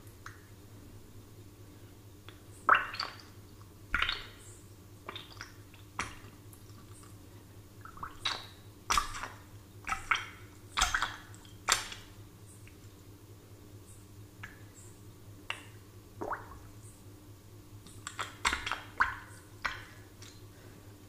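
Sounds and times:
water bubbles plopping: 2.7 - 4.4, 5.0 - 6.8, 7.8 - 12.0, 15.5 - 16.7, 18.0 - 20.0.

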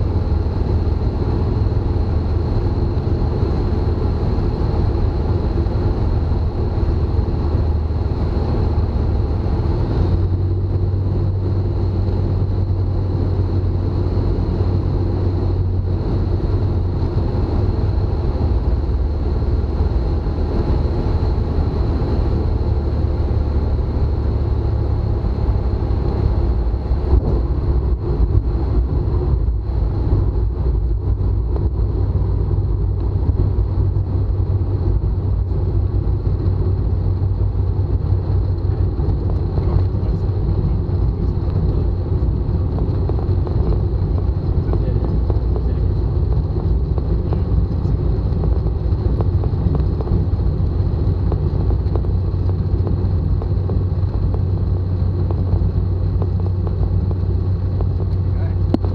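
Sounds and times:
light aircraft engine droning: 0.0 - 58.9
rolling rumble of landing aircraft: 0.0 - 58.9
wheels touching down with bumps: 24.4 - 58.9.

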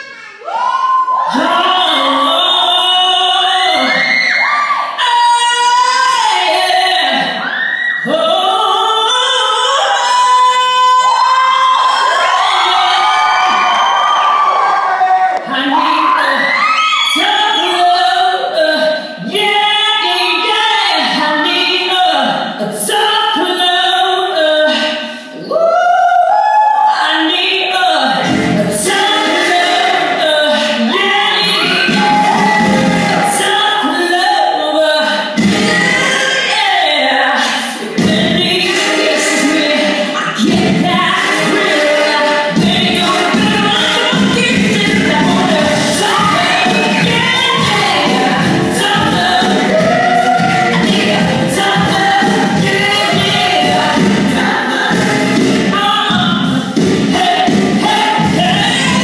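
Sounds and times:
woman singing: 1.3 - 13.7, 15.4 - 59.0
musical accompaniment: 28.1 - 33.7, 35.3 - 59.0.

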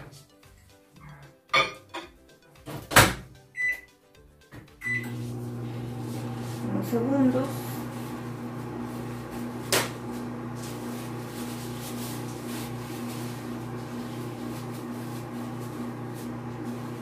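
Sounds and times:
microwave oven humming: 4.8 - 17.0.

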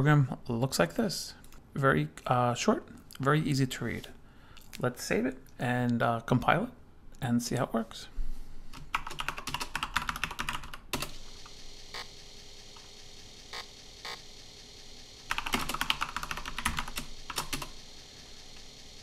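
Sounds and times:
faint steady hum: 0.0 - 19.0
typing on computer keyboard: 8.8 - 11.2, 15.3 - 17.8.

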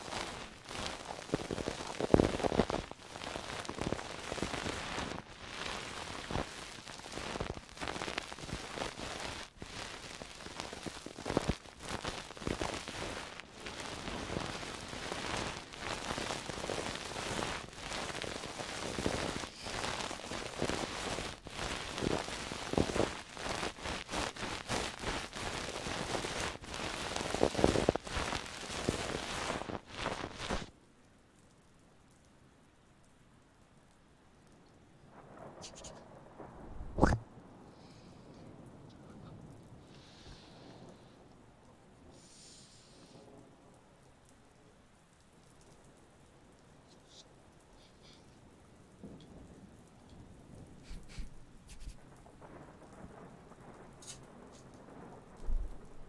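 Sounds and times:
object rubbed against microphone: 14.3 - 30.7, 35.6 - 36.0, 36.9 - 37.2, 50.8 - 52.0.

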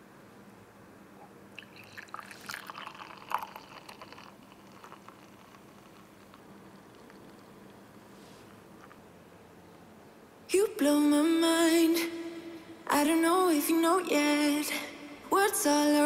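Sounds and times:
drink pouring into glass mug: 1.6 - 7.5.

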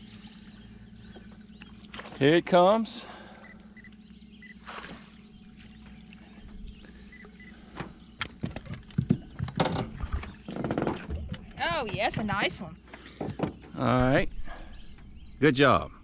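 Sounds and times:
low steady hum: 0.0 - 16.0
knocks and clatter in boat: 1.0 - 2.5, 4.6 - 14.2.

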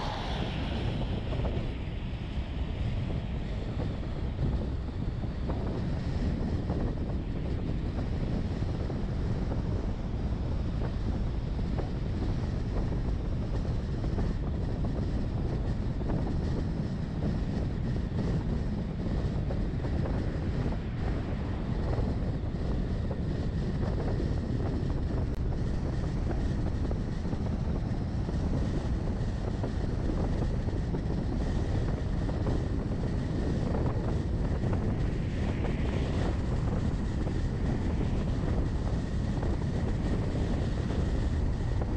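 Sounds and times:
vehicle driving rumble: 0.0 - 4.7
tyre and wind noise: 0.0 - 41.9
wind buffeting microphone: 0.0 - 41.9.

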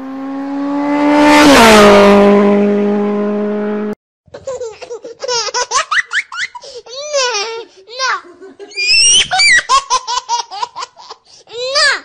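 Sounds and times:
vehicle engine passing by: 0.0 - 4.0
high-pitched laughing: 4.3 - 11.9.

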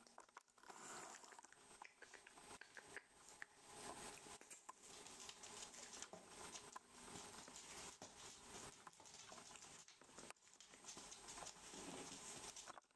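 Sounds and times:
puppy paws scuffling on wooden floor: 3.8 - 12.9.

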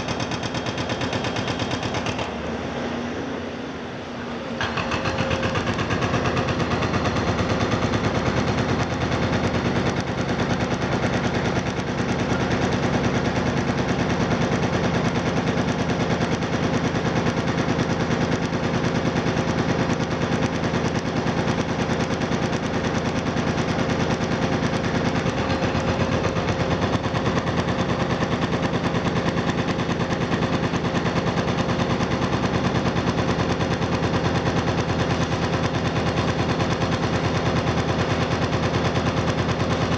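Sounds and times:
hydraulic hammer pounding concrete: 0.0 - 3.0, 4.3 - 39.9.

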